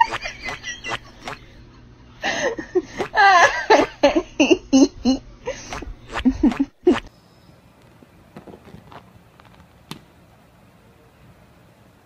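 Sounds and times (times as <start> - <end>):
person laughing and giggling: 0.0 - 7.1.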